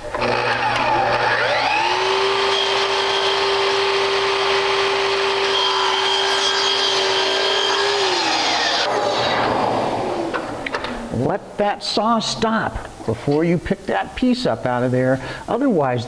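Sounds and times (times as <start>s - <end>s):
miter saw cutting wood: 0.0s - 11.0s.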